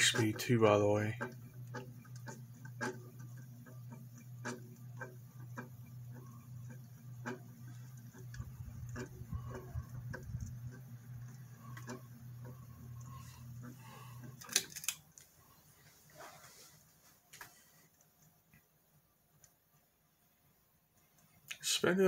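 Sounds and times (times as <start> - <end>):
fan ticking and clicking: 0.0 - 15.6
ceiling fan motor hum: 0.0 - 22.0.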